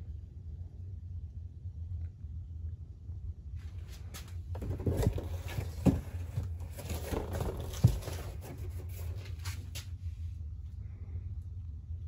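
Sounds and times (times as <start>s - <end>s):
low hum: 0.0s - 12.0s
handling rustling and scraping: 3.6s - 10.1s.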